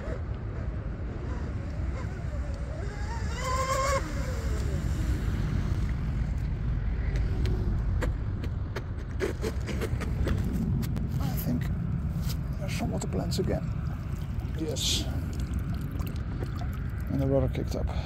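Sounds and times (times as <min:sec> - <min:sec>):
wind rumble on microphone: 0:00.0 - 0:18.0
electric motors whining: 0:01.3 - 0:05.9.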